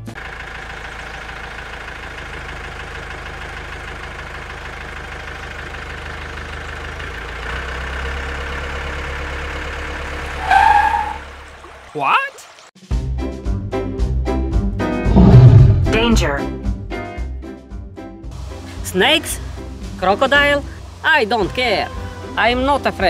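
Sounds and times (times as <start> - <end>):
tractor engine running: 0.0 - 11.9, 18.3 - 23.0.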